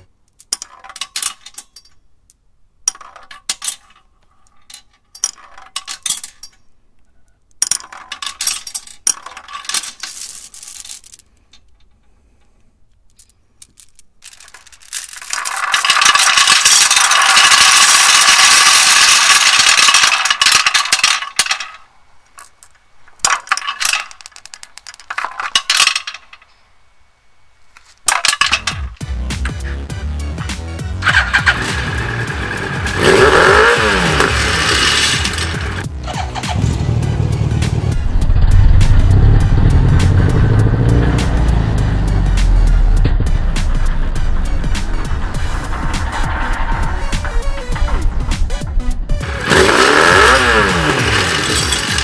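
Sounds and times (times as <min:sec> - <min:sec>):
marbles rattling in metal exhaust: 0:00.0 - 0:02.0, 0:02.8 - 0:06.7, 0:07.6 - 0:26.6, 0:27.9 - 0:29.9, 0:30.8 - 0:52.0.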